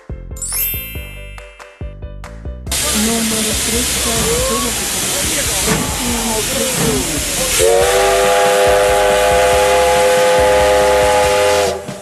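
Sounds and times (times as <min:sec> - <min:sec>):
steam hissing: 0:02.7 - 0:12.0
steam locomotive whistle: 0:02.8 - 0:12.0.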